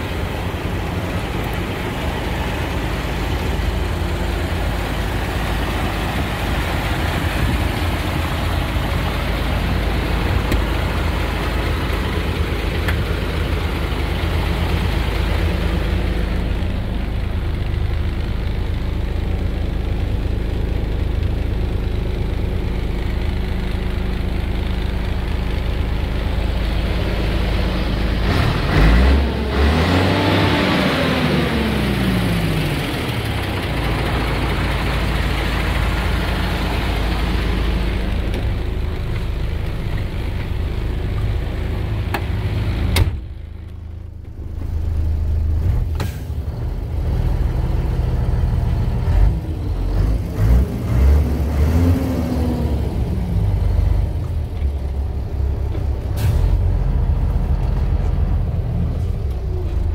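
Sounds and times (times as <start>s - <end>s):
diesel truck engine idling: 0.0s - 59.9s
engine revving: 26.8s - 38.5s, 45.5s - 54.7s.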